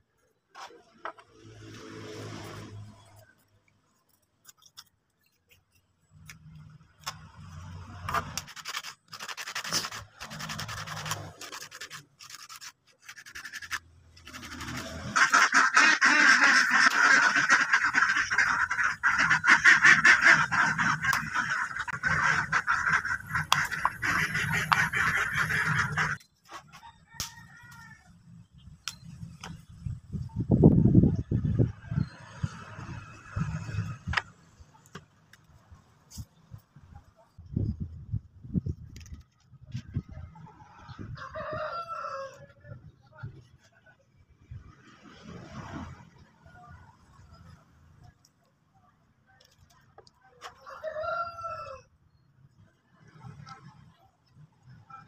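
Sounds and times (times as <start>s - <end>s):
sanding against abrasive: 8.4s - 15.6s.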